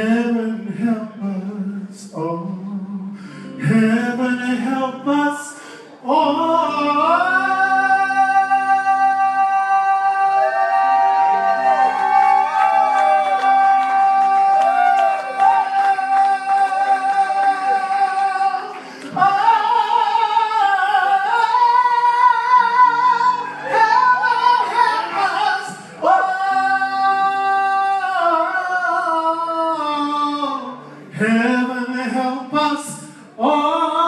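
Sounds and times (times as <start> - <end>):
singer holding long high notes: 5.5 - 31.2.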